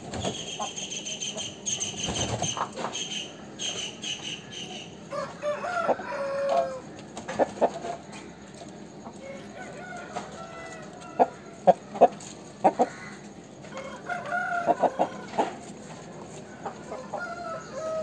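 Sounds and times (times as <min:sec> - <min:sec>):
rooster clucking: 0:00.2 - 0:18.0
rooster crowing: 0:05.1 - 0:06.9, 0:09.2 - 0:11.8, 0:12.8 - 0:15.6, 0:16.4 - 0:18.0.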